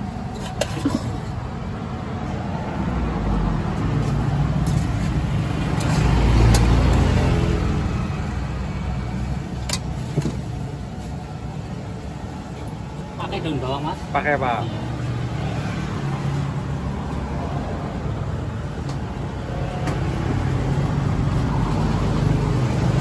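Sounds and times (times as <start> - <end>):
vehicle passing: 2.5 - 8.6.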